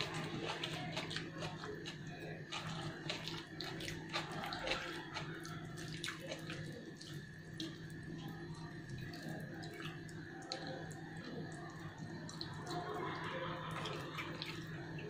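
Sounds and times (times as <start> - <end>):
chewing: 0.0 - 7.9.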